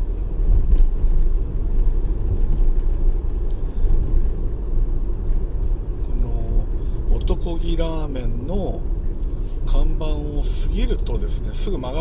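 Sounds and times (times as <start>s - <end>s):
car engine rumble: 0.0s - 12.0s
tyre road noise: 0.0s - 12.0s.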